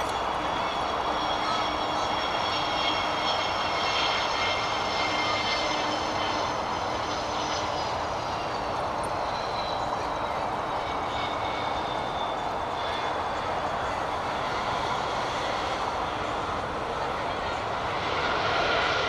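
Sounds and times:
jet engines whining on landing: 0.0s - 19.0s.

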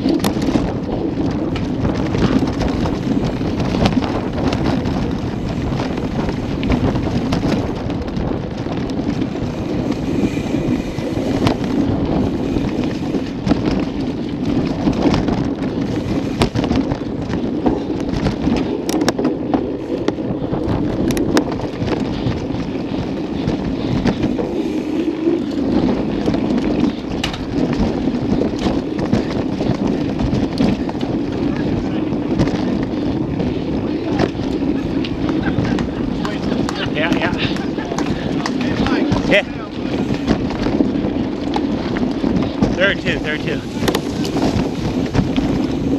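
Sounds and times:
bike knocks and rattles: 0.0s - 45.9s
bike tyres rumbling on dirt: 0.0s - 45.9s
wind on microphone: 0.0s - 45.9s.

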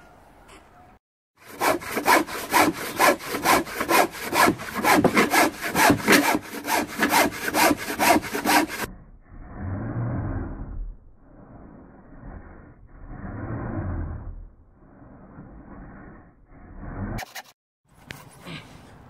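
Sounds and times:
hand saw cutting timber: 1.4s - 8.9s, 17.2s - 17.6s.

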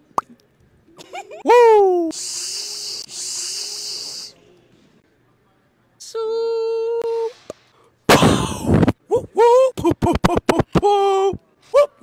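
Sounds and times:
mouth hissing: 2.1s - 4.4s.

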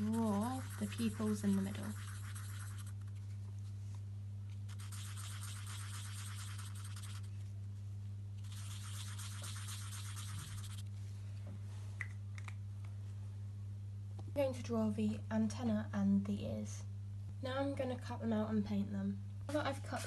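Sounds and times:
marker scratching on paper: 0.0s - 3.0s, 4.7s - 7.3s, 8.4s - 10.8s.

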